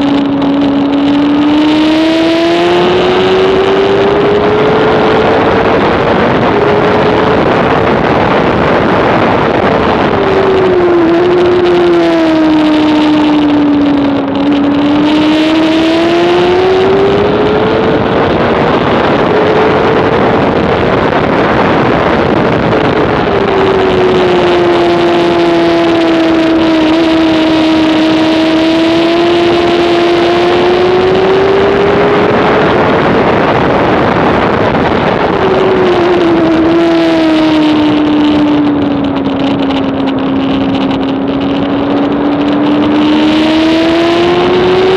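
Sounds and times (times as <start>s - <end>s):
motorcycle engine at high revs: 0.0s - 44.9s
wind and road noise: 0.0s - 44.9s.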